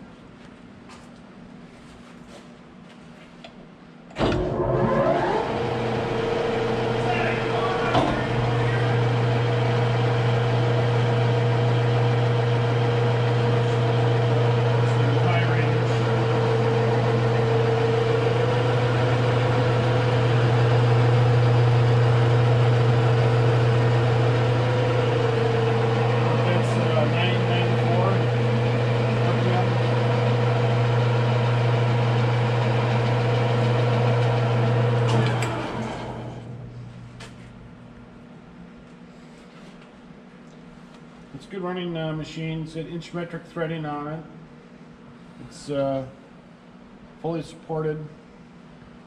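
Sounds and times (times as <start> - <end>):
lathe motor humming: 4.2 - 37.7.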